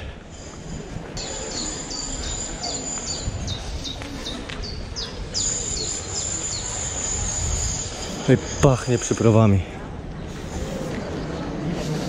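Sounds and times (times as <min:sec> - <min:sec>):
bird chirping: 0:01.2 - 0:08.0.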